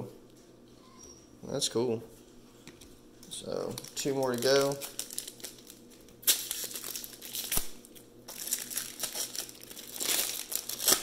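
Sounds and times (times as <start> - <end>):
plastic wrapper crinkling: 3.3 - 11.0.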